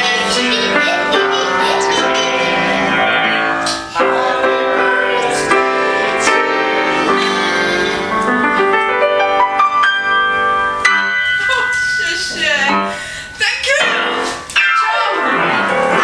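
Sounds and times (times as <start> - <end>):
piano chords and melody: 0.0 - 16.0.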